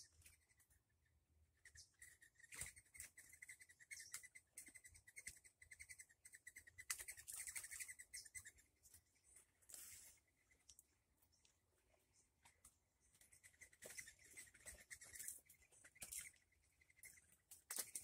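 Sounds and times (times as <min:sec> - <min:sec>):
small bird trilling: 0:01.6 - 0:08.7, 0:13.2 - 0:18.0.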